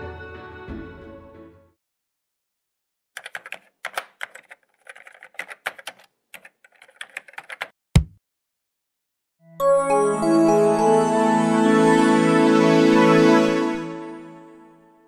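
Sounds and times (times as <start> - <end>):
keyboard key clacks: 3.2 - 8.2.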